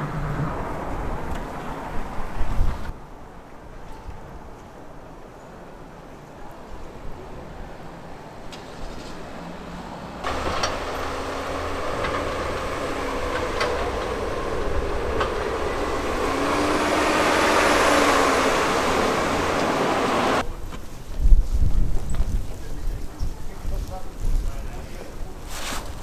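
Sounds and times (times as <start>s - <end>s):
plow truck passing: 8.6s - 20.4s.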